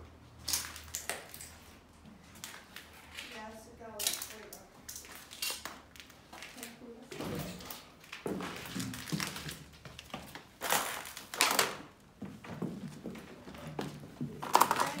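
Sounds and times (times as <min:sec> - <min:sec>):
footsteps crunching on rubble: 0:08.0 - 0:11.3.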